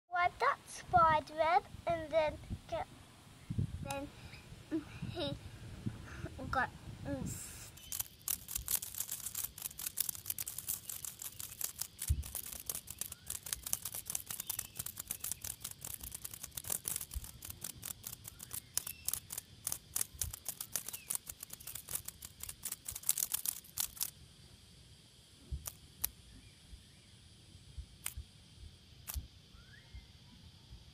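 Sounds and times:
cicada wings beating on dry leaves: 0:07.4 - 0:29.8.

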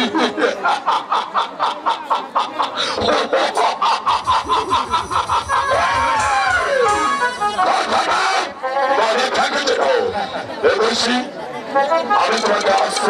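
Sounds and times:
man laughing into microphone: 0:00.0 - 0:08.3
man crying out: 0:04.3 - 0:08.5.

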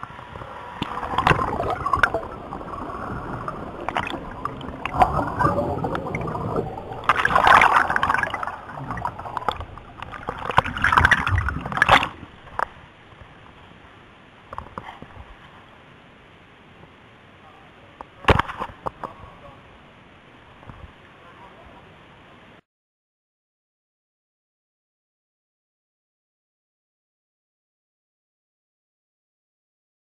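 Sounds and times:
water rushing and splashing: 0:00.0 - 0:22.6.

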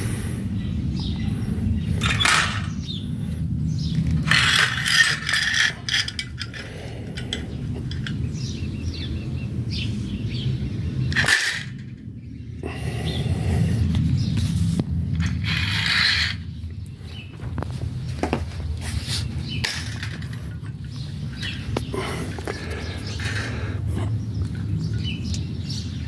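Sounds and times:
steady low rumble: 0:00.0 - 0:26.0
metallic clicks and rattles: 0:04.0 - 0:08.5.

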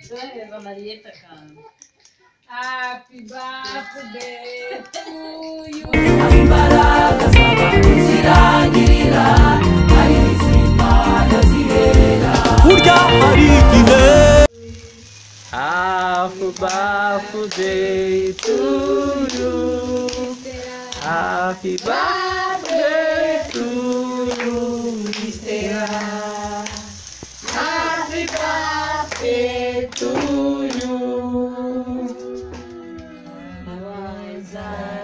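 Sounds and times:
voices singing together: 0:03.3 - 0:14.5, 0:15.5 - 0:35.0
hand clapping: 0:16.1 - 0:16.9, 0:20.9 - 0:22.9, 0:23.5 - 0:31.0.

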